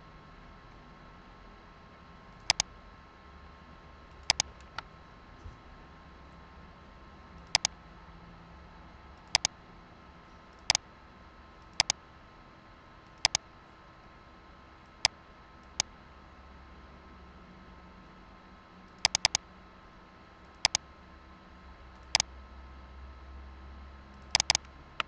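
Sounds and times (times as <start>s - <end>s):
faint steady hum: 0.0s - 25.0s
computer mouse button clicking: 2.5s - 2.7s, 4.2s - 4.8s, 7.5s - 7.7s, 9.3s - 9.5s, 13.2s - 13.4s, 19.0s - 19.4s, 20.6s - 20.8s, 24.3s - 24.7s.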